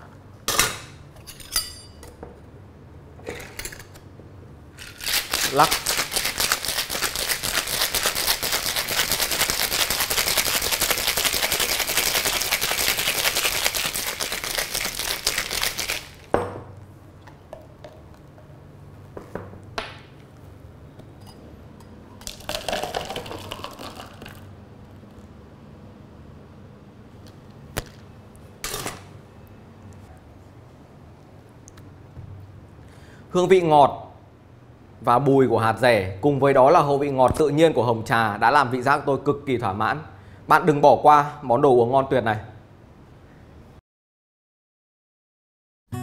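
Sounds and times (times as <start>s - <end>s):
ice rattling in cocktail shaker: 4.8s - 16.3s, 22.2s - 24.5s.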